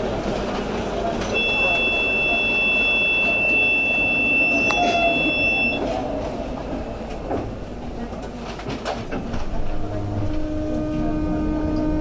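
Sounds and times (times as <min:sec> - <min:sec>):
city street noise: 0:00.0 - 0:12.0
tram rumbling at a stop: 0:00.0 - 0:12.0
tram buzzer high tone: 0:01.4 - 0:05.8.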